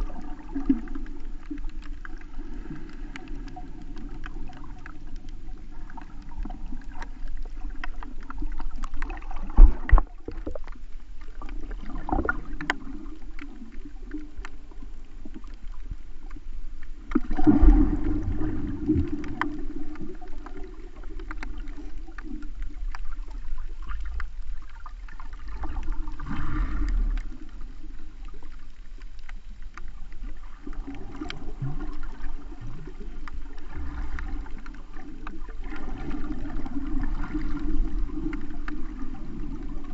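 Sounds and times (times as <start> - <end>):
muffled underwater rumble and sloshing: 0.0 - 39.9.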